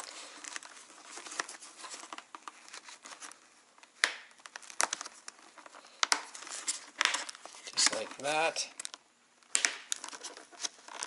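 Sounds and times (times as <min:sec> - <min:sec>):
fabric and foam rustling: 0:00.0 - 0:03.8.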